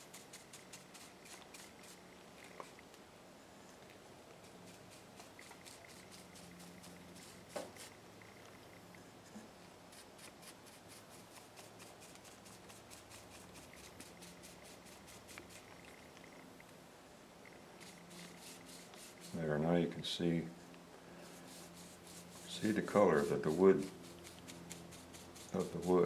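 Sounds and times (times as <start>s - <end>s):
paintbrush brushing on wood: 0.0s - 2.8s, 4.3s - 8.4s, 9.4s - 16.0s, 17.8s - 19.9s, 21.1s - 26.0s.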